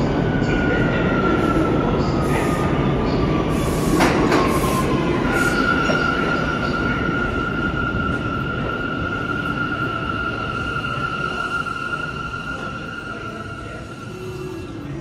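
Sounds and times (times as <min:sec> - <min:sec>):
subway train wheels squealing: 0:00.0 - 0:15.0
train rumbling clatter: 0:01.9 - 0:07.0.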